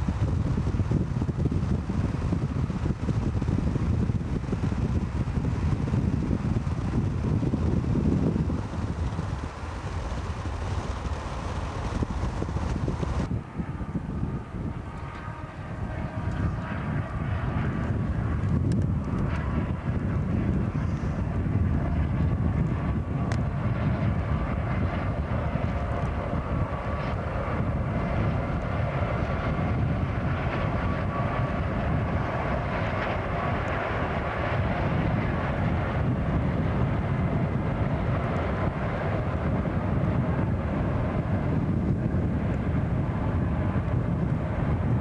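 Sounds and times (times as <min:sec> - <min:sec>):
car road noise: 0:00.0 - 0:20.7
diesel locomotive engines rumbling: 0:00.0 - 0:45.0.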